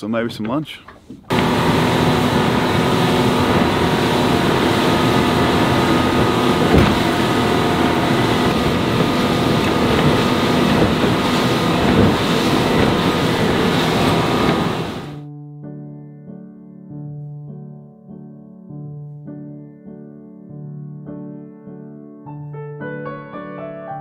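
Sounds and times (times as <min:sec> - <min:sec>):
boat engine drone: 0:01.3 - 0:15.2
water rushing along hull: 0:01.3 - 0:15.2
wind on microphone: 0:01.3 - 0:15.2
thump: 0:06.6 - 0:07.2.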